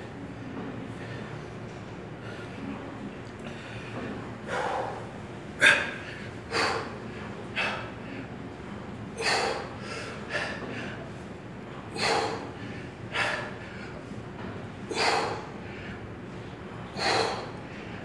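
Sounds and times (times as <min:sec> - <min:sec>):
person breathing hard: 0:03.5 - 0:08.3, 0:11.9 - 0:14.0, 0:14.9 - 0:16.0, 0:16.9 - 0:18.0.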